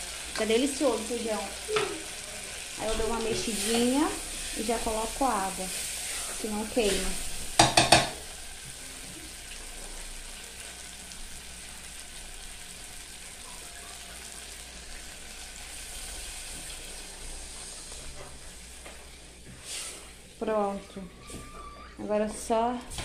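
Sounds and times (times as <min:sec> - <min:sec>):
food sizzling in pot: 0:00.0 - 0:20.8
spatula knocking on saucepan: 0:07.6 - 0:08.2.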